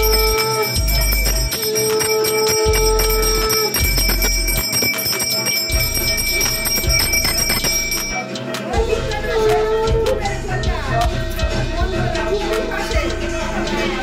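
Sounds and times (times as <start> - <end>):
hand bell ringing rapidly: 0.0 - 8.2.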